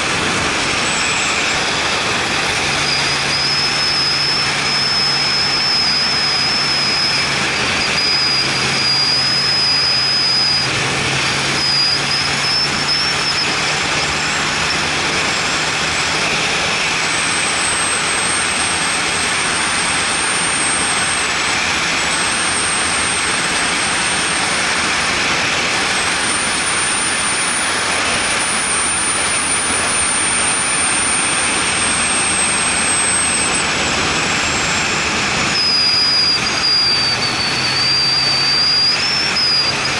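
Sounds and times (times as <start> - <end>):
low engine hum: 0.0 - 39.9
wind and road noise: 0.0 - 39.9
thin high whistle: 2.7 - 14.9, 26.0 - 33.7, 35.5 - 39.9.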